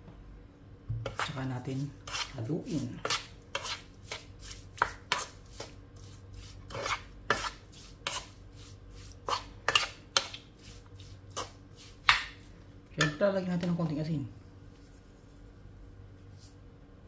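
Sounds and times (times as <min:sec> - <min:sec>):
wooden spoon scraping pan: 0:01.0 - 0:12.3.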